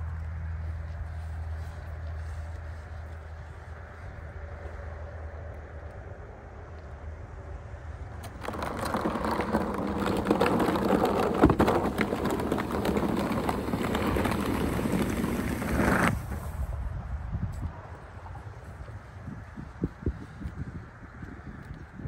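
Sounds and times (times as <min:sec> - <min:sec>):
rolling wheels: 0:08.1 - 0:16.7
snow pusher scraping concrete: 0:08.2 - 0:16.7.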